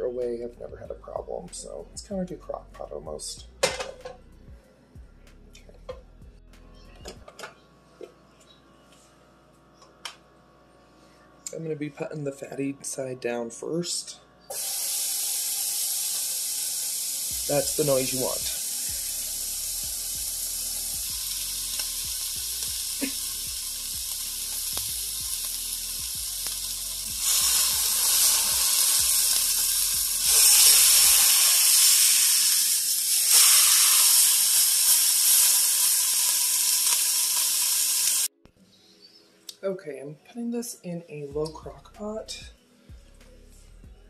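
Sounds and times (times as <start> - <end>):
meat searing in hot oil: 14.5 - 38.3.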